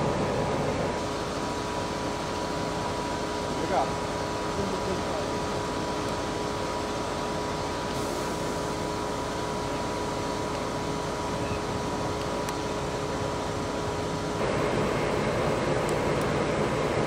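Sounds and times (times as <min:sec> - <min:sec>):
crane engine running: 0:00.0 - 0:17.0.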